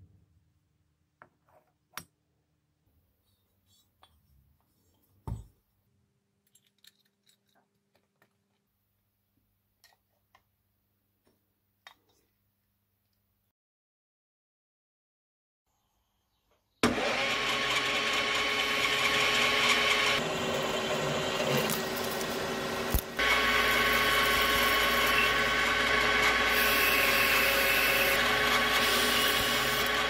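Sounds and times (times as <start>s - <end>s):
metal lathe motor whine: 16.9s - 30.0s
hiss of metal cutting: 26.5s - 30.0s.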